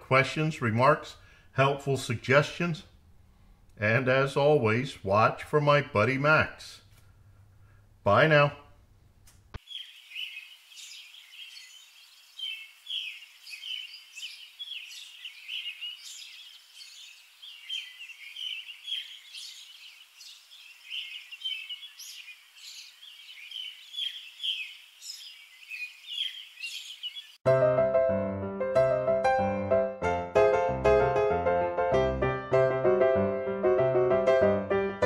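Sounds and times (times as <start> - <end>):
small birds chirping: 9.5 - 27.4.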